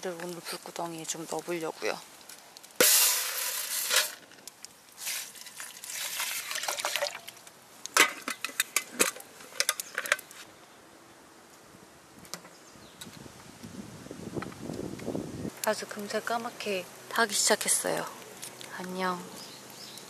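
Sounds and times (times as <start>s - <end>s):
contents poured into water: 5.0s - 7.4s.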